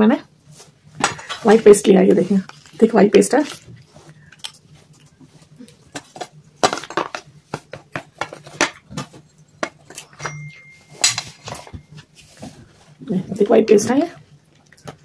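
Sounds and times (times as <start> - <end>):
bowl and cups clinking: 9.5 - 12.0.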